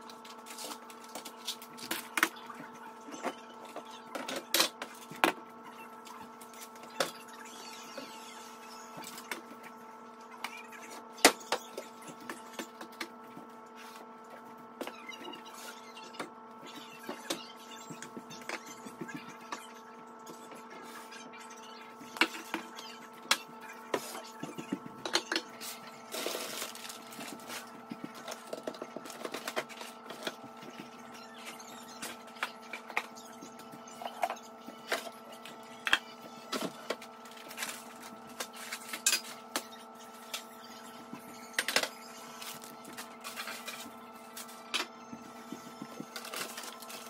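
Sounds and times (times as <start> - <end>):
packages and jars clattering: 23.9 - 30.5.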